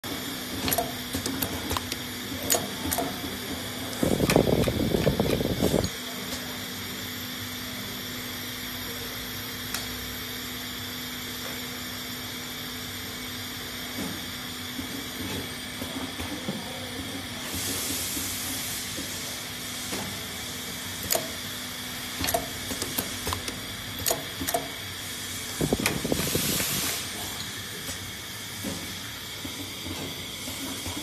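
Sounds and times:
coil winding machine humming: 0:00.0 - 0:31.0
loud machine rattling: 0:04.0 - 0:05.9.

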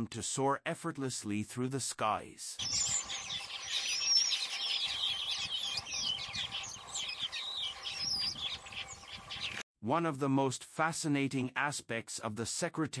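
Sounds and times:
small birds chirping and twittering: 0:02.6 - 0:09.6.

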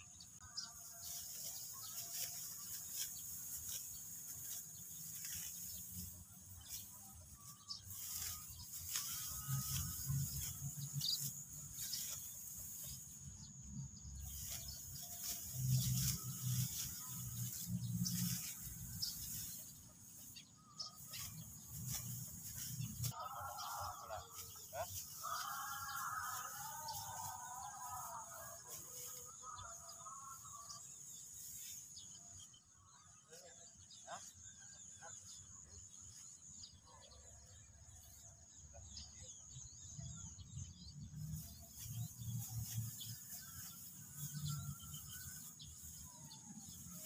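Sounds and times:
bird chirps: 0:00.0 - 0:27.7
sickles cutting rice stalks: 0:00.4 - 0:32.6, 0:40.9 - 0:47.0.

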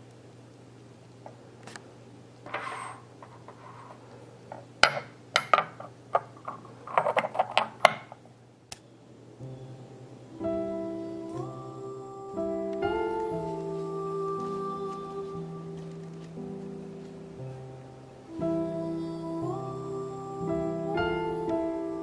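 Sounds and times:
ceramic scrape: 0:02.5 - 0:04.1.

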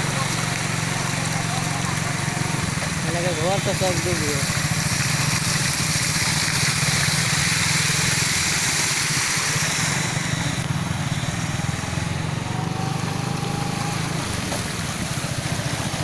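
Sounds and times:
motorcycle engine running: 0:00.0 - 0:16.0
water splashing: 0:00.0 - 0:16.0.

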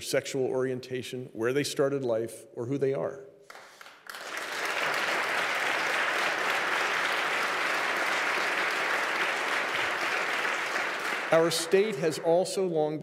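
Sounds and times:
large audience applause: 0:03.5 - 0:12.6.

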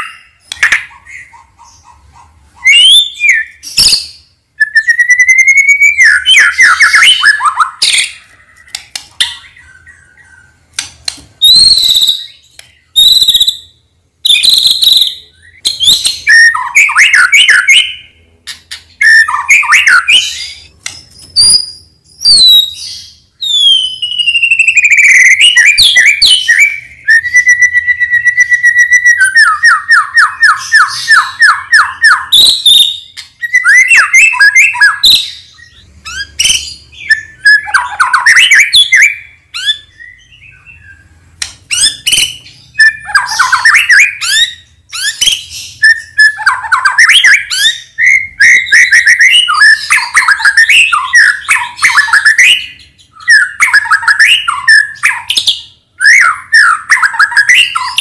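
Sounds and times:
bird singing whistles and trills: 0:00.0 - 0:01.9, 0:02.6 - 0:10.6, 0:11.4 - 0:58.0.

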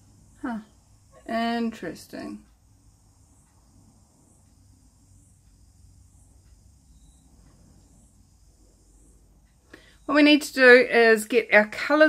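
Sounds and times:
faint high chirp: 0:06.8 - 0:08.2.

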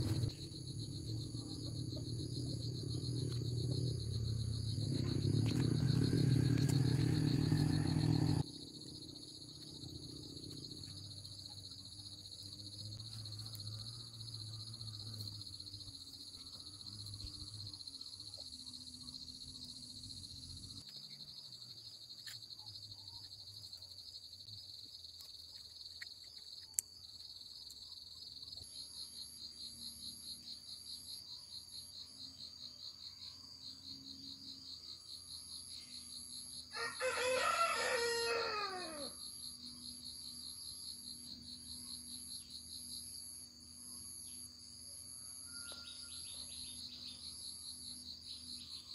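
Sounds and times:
insects chirring: 0:00.0 - 0:48.9
rooster crowing: 0:05.2 - 0:08.4, 0:36.7 - 0:39.2, 0:45.1 - 0:46.6.

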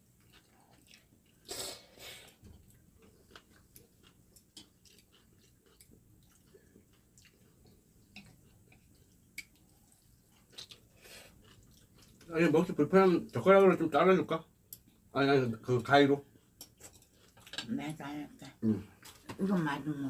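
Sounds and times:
faint chewing: 0:00.0 - 0:13.8, 0:15.7 - 0:17.7.

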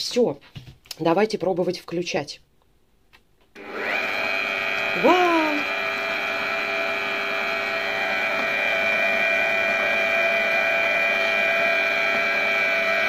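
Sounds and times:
stand mixer motor whining: 0:03.6 - 0:13.0.

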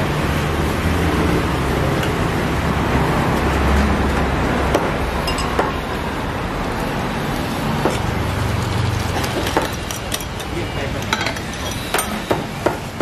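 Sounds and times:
traffic and street noise: 0:00.0 - 0:13.0
kitchen utensils and dishes clinking: 0:05.2 - 0:05.9, 0:09.1 - 0:12.9.

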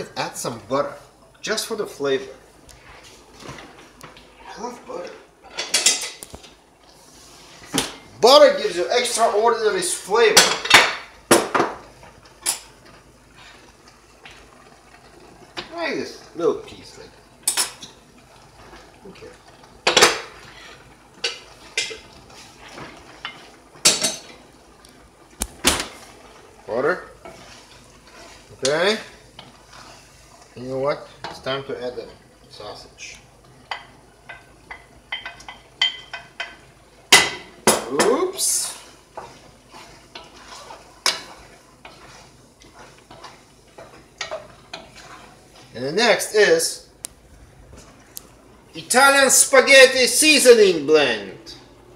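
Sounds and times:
wooden spoon stirring in a pot: 0:00.4 - 0:50.8
spoon stirring spaghetti: 0:20.2 - 0:24.9, 0:26.0 - 0:31.5, 0:38.1 - 0:46.3.

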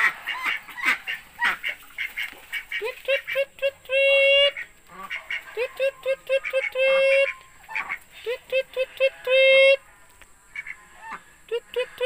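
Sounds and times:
ducks quacking: 0:00.0 - 0:12.0.

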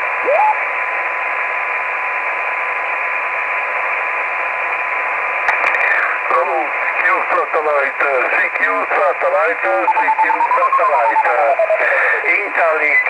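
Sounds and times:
radio receiver hiss: 0:05.5 - 0:13.0.

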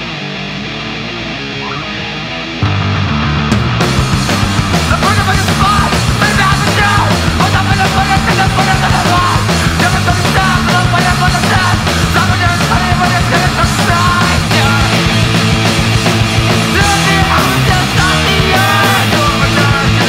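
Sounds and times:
driving drum beat: 0:02.6 - 0:20.0
person singing: 0:04.7 - 0:15.2, 0:16.5 - 0:20.0.

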